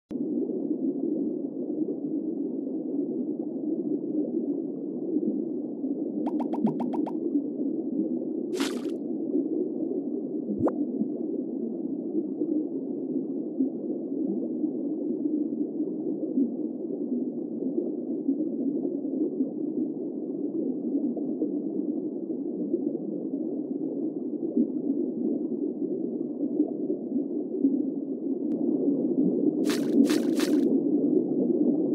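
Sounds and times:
muffled underwater noise: 0:06.3 - 0:07.1.

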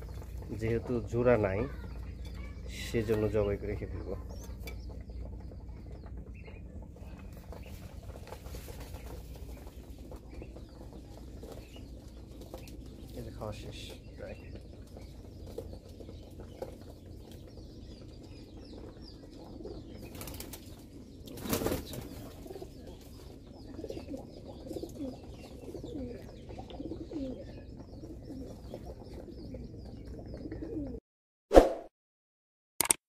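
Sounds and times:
pigeons cooing: 0:00.0 - 0:31.0
pigeon wings flapping: 0:07.0 - 0:13.4, 0:18.4 - 0:23.2.

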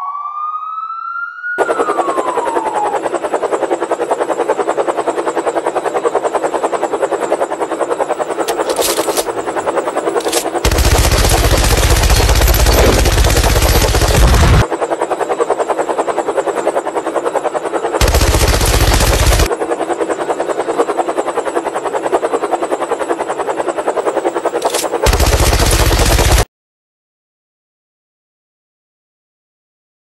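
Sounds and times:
machine-gun fire: 0:10.2 - 0:14.6, 0:18.0 - 0:19.5, 0:24.5 - 0:26.5.

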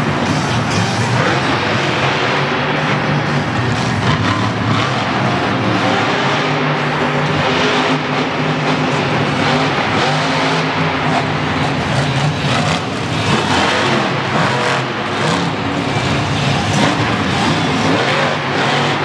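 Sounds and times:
truck engine revving hard: 0:00.0 - 0:19.0.

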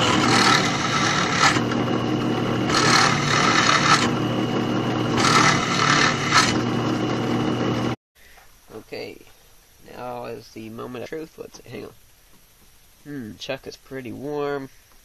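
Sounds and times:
drill bit cutting with scraping hiss: 0:00.0 - 0:01.9, 0:02.6 - 0:04.2, 0:05.1 - 0:06.6
drill chattering: 0:00.0 - 0:07.8
drill press running: 0:00.0 - 0:08.0.

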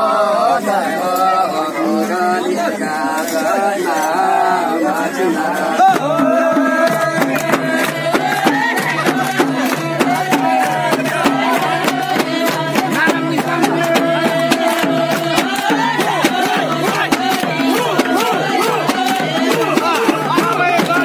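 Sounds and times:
voices singing: 0:00.0 - 0:21.0
hand drums beating: 0:05.4 - 0:21.0.

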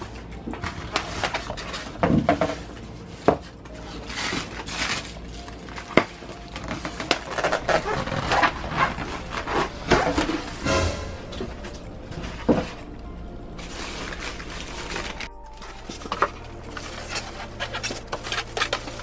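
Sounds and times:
plastic wrap rustling: 0:00.0 - 0:10.6, 0:11.8 - 0:19.0
styrofoam rubbing and knocking: 0:06.7 - 0:10.7.

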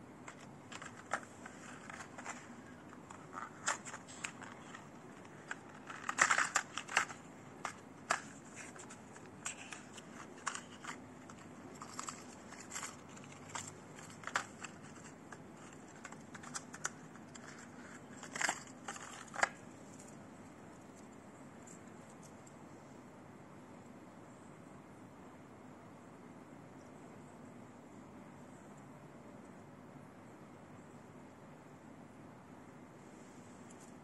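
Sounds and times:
plastic box crinkling and clicking: 0:00.3 - 0:20.1.

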